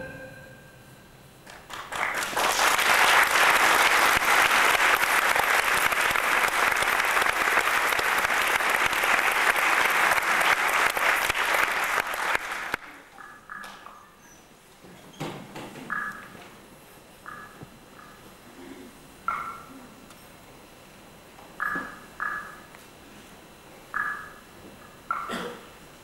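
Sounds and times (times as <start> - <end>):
audience applauding: 1.4 - 13.1.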